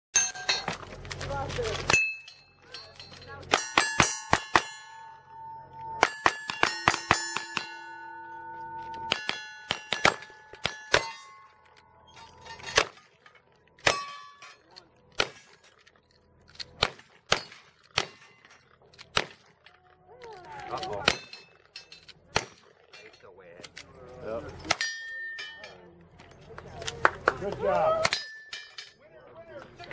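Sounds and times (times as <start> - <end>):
steel target clanging: 0.2 - 0.9, 1.7 - 16.0, 21.0 - 23.4, 24.0 - 25.9, 28.0 - 29.1
gunshots: 9.1 - 11.2, 15.1 - 15.6, 16.7 - 18.4, 19.0 - 19.6.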